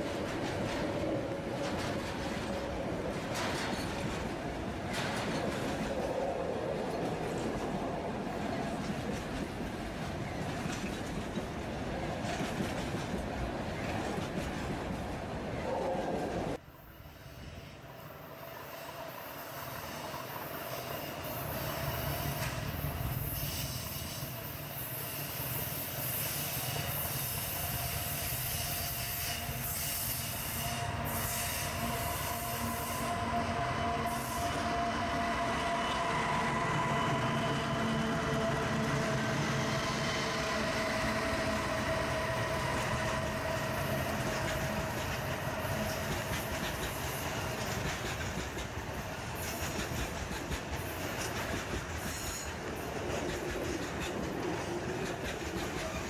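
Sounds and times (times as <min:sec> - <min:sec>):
diesel locomotive engines rumbling: 0:00.0 - 0:56.0
train wheels squealing: 0:03.3 - 0:04.1, 0:16.7 - 0:48.6, 0:50.8 - 0:53.0.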